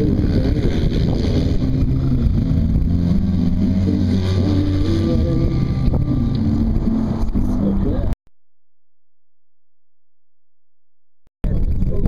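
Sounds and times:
engine revving: 0.0 - 8.2.

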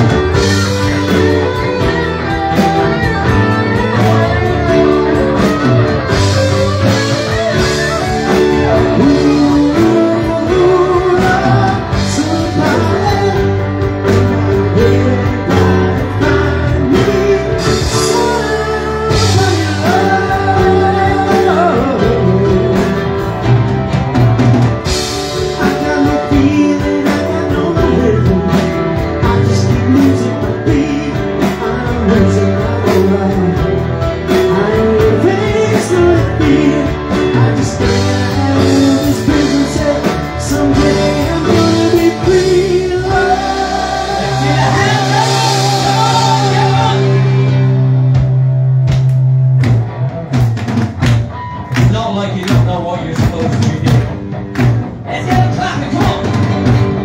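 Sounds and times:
bass guitar: 0.0 - 57.0
drum kit: 0.0 - 57.0
electric guitar: 0.0 - 57.0
lead singing: 4.8 - 23.4, 25.4 - 47.9.

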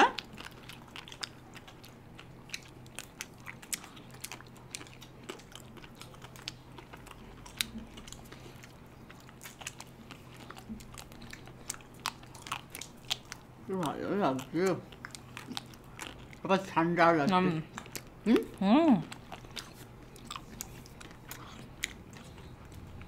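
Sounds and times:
biting ice cream bars: 0.0 - 16.7, 17.7 - 23.0
chewing and lip smacks: 0.0 - 16.7, 17.7 - 23.0.

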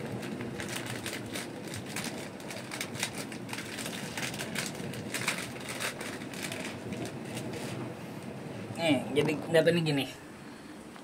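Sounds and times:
plastic sachet crinkling: 0.2 - 7.5.

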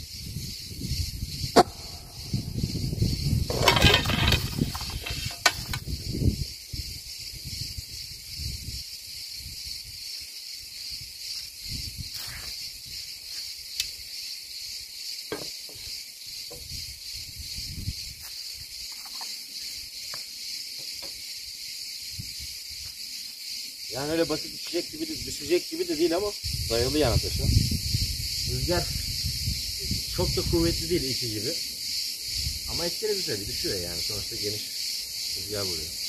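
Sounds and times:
wind buffeting microphone: 0.0 - 10.0, 11.0 - 13.1, 16.6 - 18.2, 22.1 - 22.6, 26.1 - 31.3, 32.2 - 34.2
insects hissing: 0.0 - 36.0
equipment knocks and rustles: 3.5 - 5.8.

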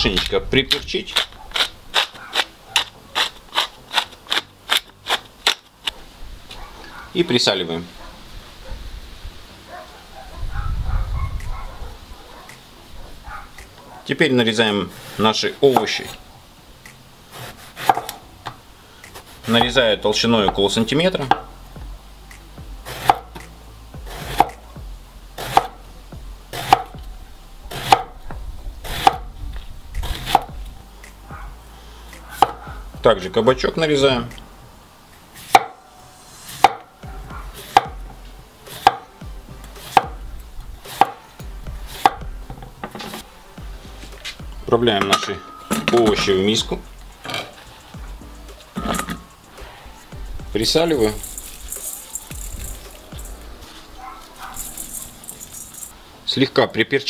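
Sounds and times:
pepper mill grinding: 0.0 - 5.7, 50.8 - 56.0
knife slicing on wooden board: 1.1 - 5.6, 17.3 - 18.2, 22.8 - 23.5, 24.1 - 24.6, 25.4 - 25.8, 26.5 - 26.9, 27.7 - 28.1, 28.8 - 29.2, 30.0 - 31.2, 37.6 - 38.0, 38.7 - 39.0, 39.8 - 40.1, 40.9 - 41.2.

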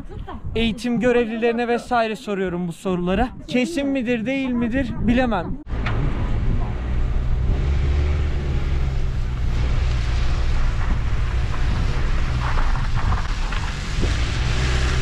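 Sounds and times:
car interior road rumble: 5.6 - 15.0.

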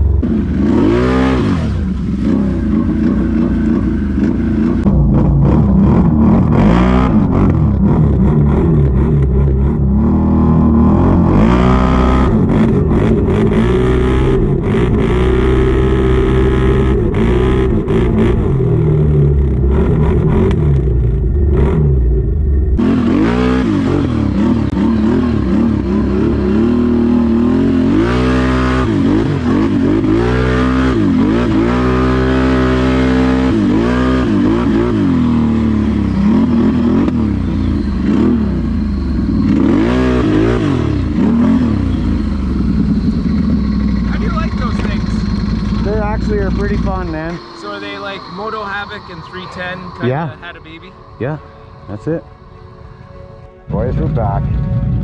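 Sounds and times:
engine revving: 0.0 - 52.3.

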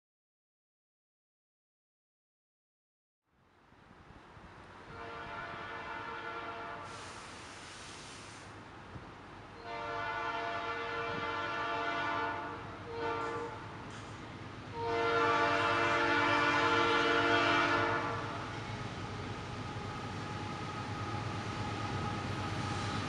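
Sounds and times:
locomotive air horn blasts: 4.9 - 7.4, 9.6 - 13.7, 14.7 - 18.6
brief hiss: 6.8 - 8.6.

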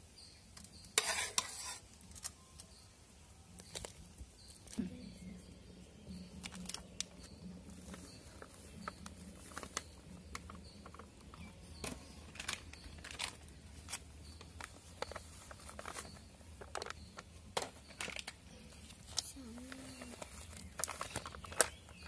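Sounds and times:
milk boiling with pops: 6.2 - 18.4.

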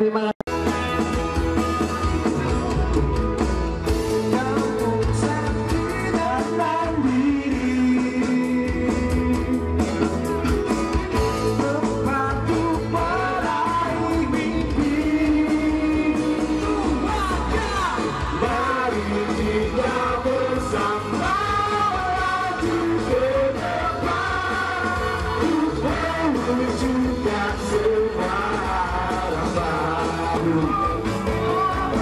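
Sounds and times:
electric bass guitar: 0.5 - 32.0
live rock band playing: 0.5 - 32.0
person singing: 3.8 - 10.3, 11.2 - 32.0.

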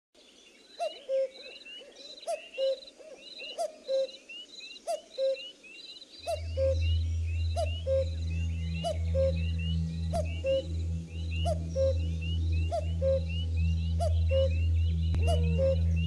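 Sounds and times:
bird chirps and whistles: 6.2 - 10.7, 11.3 - 16.0
low two-note bird call: 6.2 - 16.0
steady low hum: 6.2 - 16.0.

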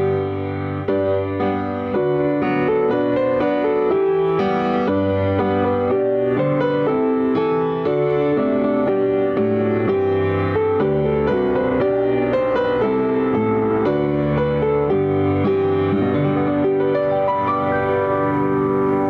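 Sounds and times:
solo piano: 0.0 - 19.0.

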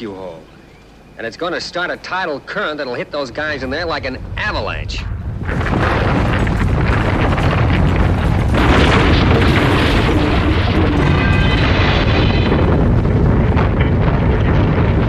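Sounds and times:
ground rumbling and debris crashing: 3.2 - 15.0.

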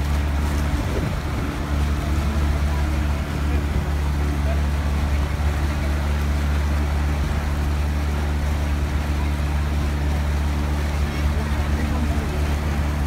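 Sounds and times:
hiss of water and wind: 0.0 - 13.0
motorboat engine humming: 0.0 - 13.0.

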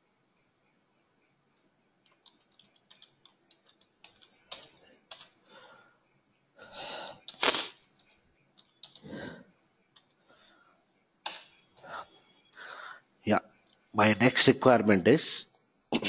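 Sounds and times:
keyboard keystrokes: 2.0 - 5.3, 8.6 - 9.0
person breathing: 4.8 - 6.0, 6.6 - 7.3, 9.0 - 9.5, 10.2 - 10.8, 11.8 - 13.1.

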